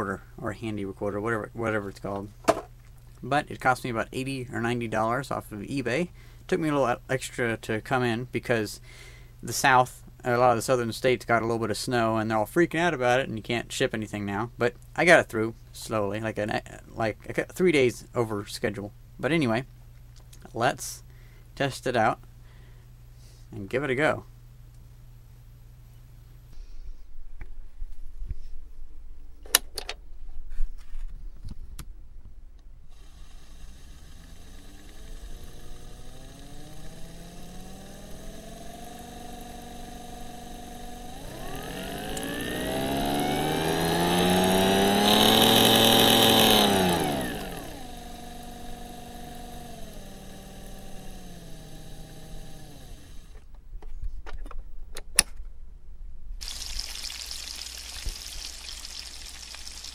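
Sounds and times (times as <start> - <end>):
small motor whining: 32.9 - 53.5.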